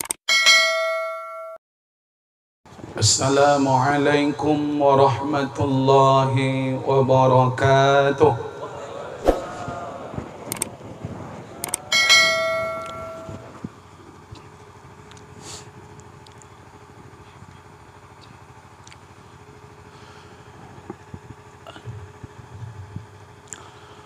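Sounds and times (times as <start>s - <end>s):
bright bell ding: 0.3s - 1.6s, 11.9s - 13.4s
thin hum: 8.9s - 13.6s.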